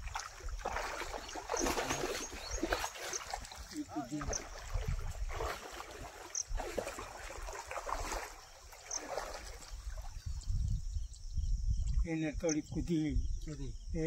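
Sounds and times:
wading through water: 0:00.0 - 0:10.8.

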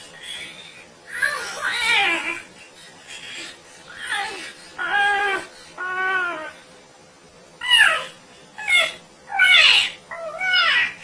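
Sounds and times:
parrot mimicking moaning: 0:03.9 - 0:06.6, 0:07.6 - 0:11.0.

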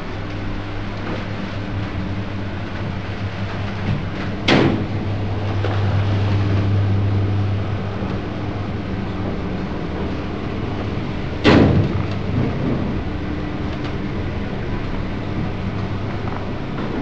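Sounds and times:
lift humming: 0:00.0 - 0:17.0
loud thump: 0:11.4 - 0:12.4.

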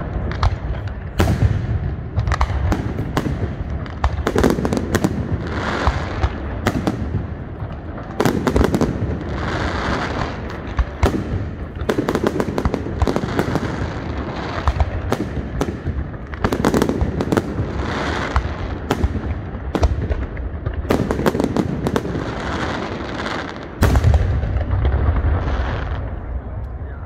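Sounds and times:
sharp firework bangs: 0:00.0 - 0:26.5
deep firework booms: 0:00.0 - 0:26.9
fireworks bursting and crackling: 0:00.0 - 0:27.0.

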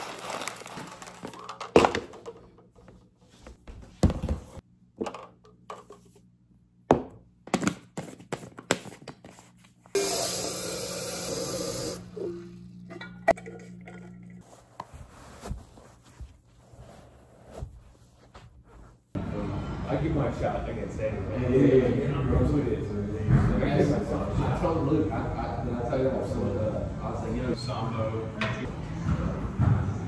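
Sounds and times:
tap water running: 0:10.0 - 0:12.1.

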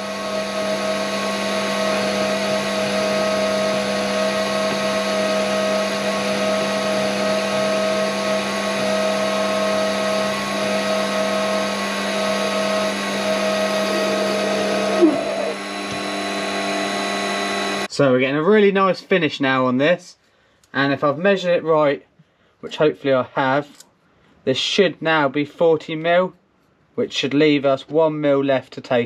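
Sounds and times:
cutting tool hissing: 0:00.0 - 0:17.9
lathe motor and gear whine: 0:00.0 - 0:17.9.

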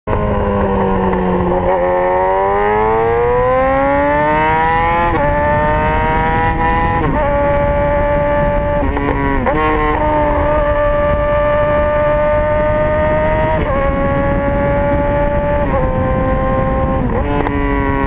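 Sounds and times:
motorcycle engine accelerating: 0:00.1 - 0:18.0.

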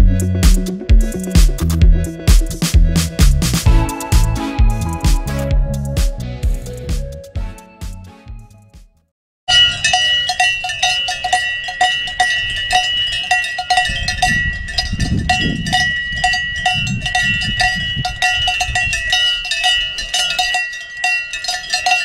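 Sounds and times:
cowbells clanking: 0:09.5 - 0:22.0.

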